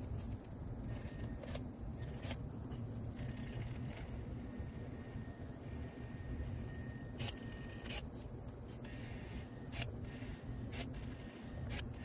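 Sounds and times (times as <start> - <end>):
caulking gun high whine: 3.1 - 8.2.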